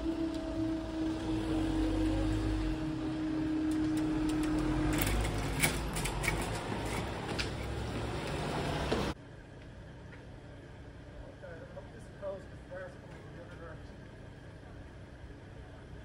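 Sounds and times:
cars rumbling across crossing: 0:00.0 - 0:09.2.

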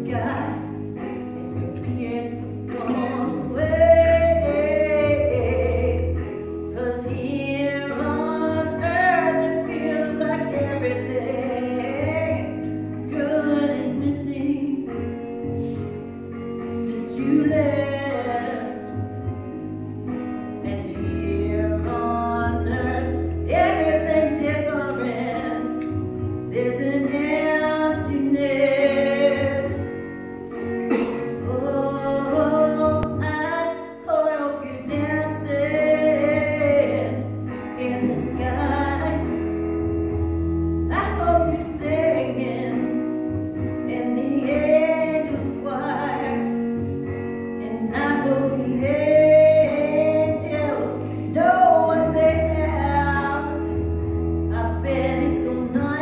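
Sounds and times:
instrumental accompaniment with bass: 0:00.0 - 0:56.0
woman singing into a microphone: 0:00.0 - 0:56.0.

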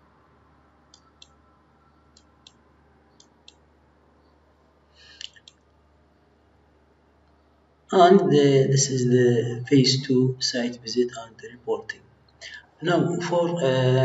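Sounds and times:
computer mouse clicking: 0:00.9 - 0:01.4, 0:02.1 - 0:03.7, 0:05.2 - 0:05.7.

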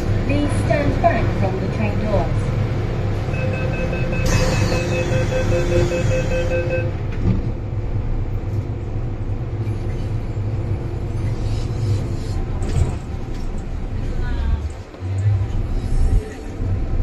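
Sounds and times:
train car low hum: 0:00.0 - 0:17.0
rapid warning beeps: 0:03.3 - 0:06.9
train doors thudding shut: 0:04.0 - 0:06.3.

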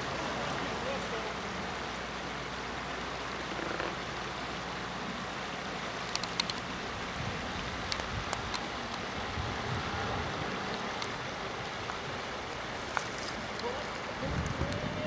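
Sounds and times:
creek water running over stones: 0:00.0 - 0:15.0
sharp ticks: 0:06.0 - 0:06.8, 0:07.8 - 0:09.1, 0:10.6 - 0:11.2.

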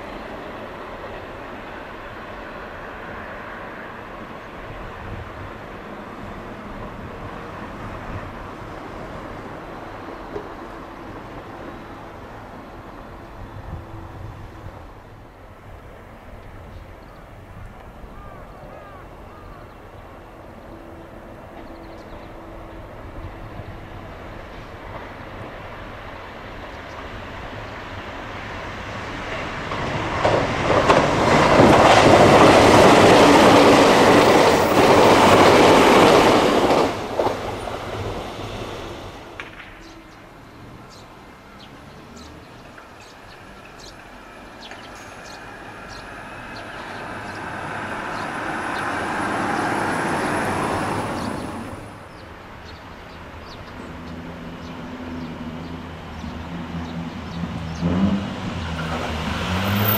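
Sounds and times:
electric train passing: 0:00.0 - 0:59.9.

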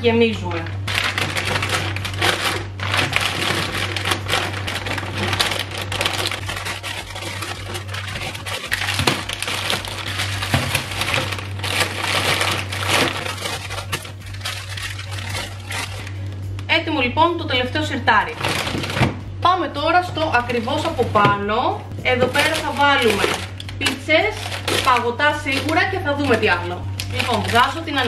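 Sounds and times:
steady low hum: 0:00.0 - 0:28.0
plastic packets crinkling: 0:00.5 - 0:16.7, 0:18.3 - 0:19.2, 0:22.2 - 0:28.0.

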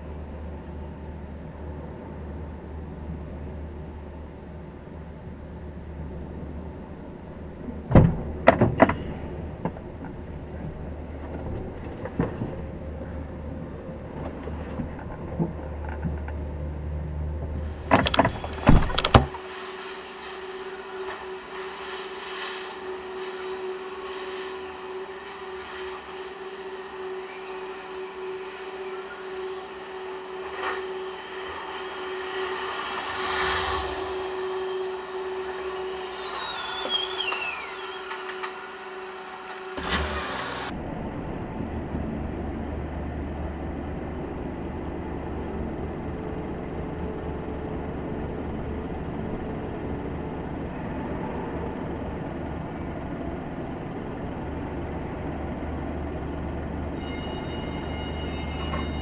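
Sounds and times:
heavy vehicle engine: 0:23.2 - 0:57.0
short falling whine: 0:24.5 - 0:40.7
steady hum: 0:25.0 - 0:39.9.

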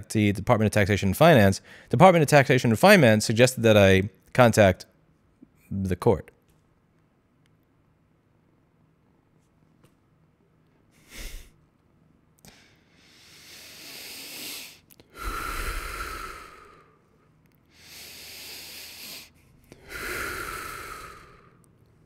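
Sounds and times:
man breathing deeply: 0:01.6 - 0:01.9, 0:11.0 - 0:11.6, 0:12.4 - 0:21.7.

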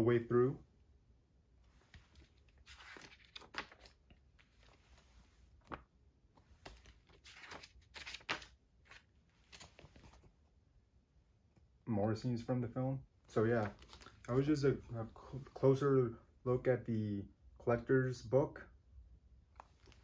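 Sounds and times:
paper pages turning: 0:01.8 - 0:10.3, 0:13.5 - 0:14.6, 0:19.6 - 0:20.0.

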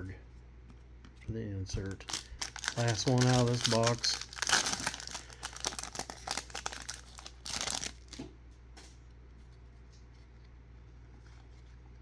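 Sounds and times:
foil wrapper crinkling and tearing: 0:01.8 - 0:08.2.

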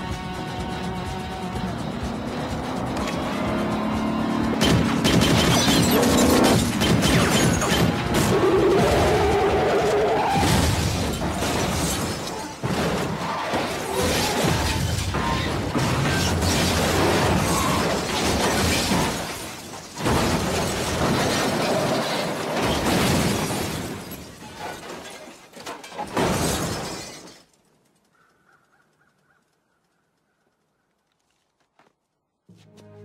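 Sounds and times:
metal scraping and crunching: 0:04.4 - 0:27.8
loud crashes: 0:04.6 - 0:24.8
glass shattering: 0:05.2 - 0:08.0, 0:10.4 - 0:27.5.

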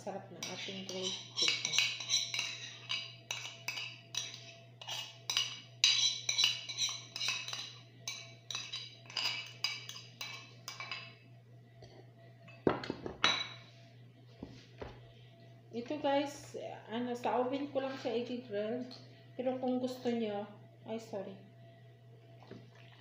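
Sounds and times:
spoon clinking on mixing bowl: 0:00.4 - 0:11.1.

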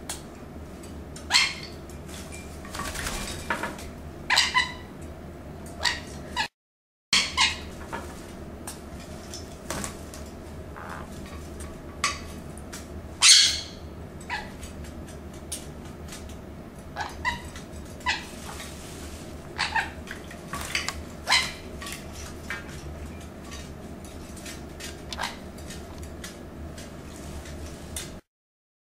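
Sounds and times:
conures squawking: 0:10.7 - 0:11.2, 0:13.2 - 0:14.6, 0:19.5 - 0:20.0, 0:21.2 - 0:21.7.

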